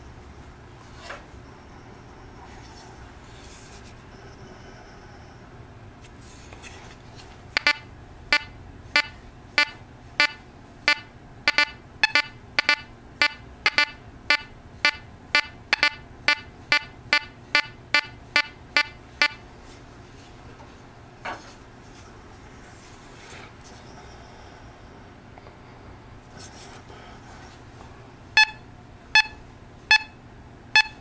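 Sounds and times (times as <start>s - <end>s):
metal detector beeps: 7.6s - 19.4s, 28.4s - 28.6s, 29.2s - 30.2s, 30.8s - 31.0s.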